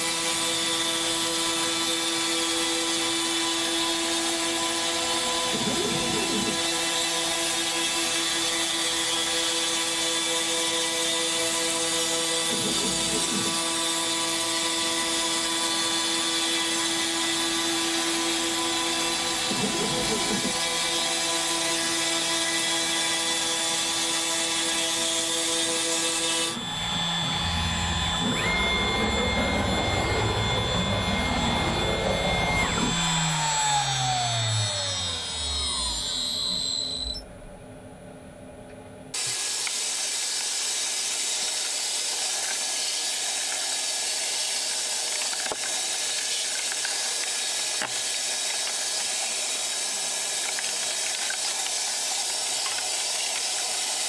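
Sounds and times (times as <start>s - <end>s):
router spindle cutting wood: 0.0s - 37.2s, 39.2s - 54.0s
spindle winding down whine: 0.0s - 37.6s.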